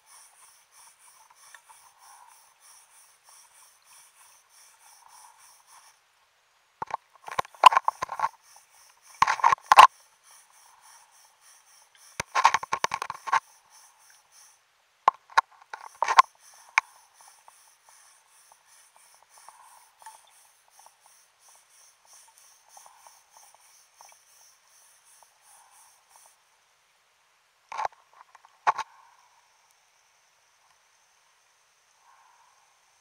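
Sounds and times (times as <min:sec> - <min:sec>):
fast high ticking underwater: 0:00.0 - 0:06.0, 0:06.8 - 0:26.4.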